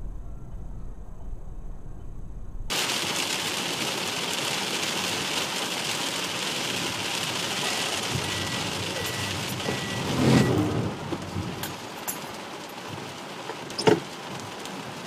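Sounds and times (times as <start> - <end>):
vehicle road noise rumble: 0.0 - 15.0
steady hiss with crackle: 2.7 - 15.0.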